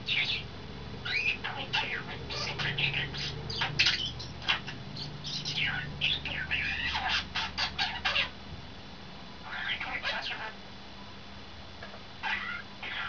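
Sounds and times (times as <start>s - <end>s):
starling singing: 0.0s - 8.4s, 9.4s - 10.6s, 12.2s - 13.0s.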